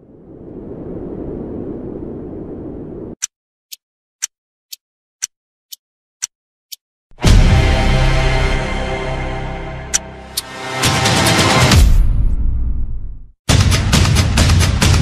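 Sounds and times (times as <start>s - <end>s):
music: 7.2s - 12.6s, 13.5s - 15.0s.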